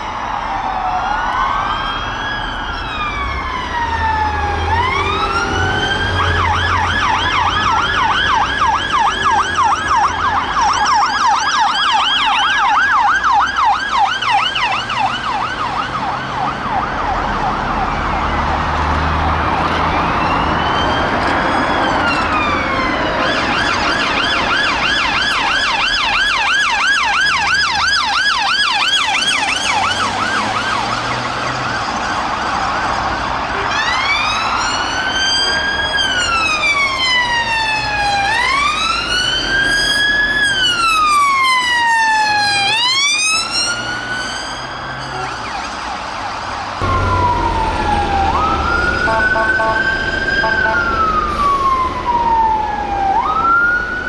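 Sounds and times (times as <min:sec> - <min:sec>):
car engines and tyres rumbling: 0:00.0 - 0:54.0
police sirens: 0:00.0 - 0:54.0.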